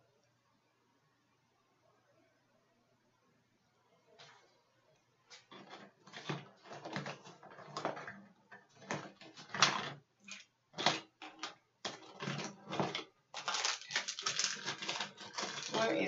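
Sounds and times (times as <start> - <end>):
rummaging small items: 5.3 - 16.0.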